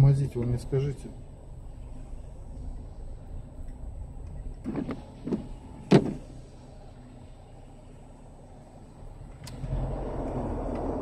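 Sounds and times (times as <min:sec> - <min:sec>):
low rumble inside car: 0:00.0 - 0:11.0
loud short thump: 0:04.7 - 0:06.3.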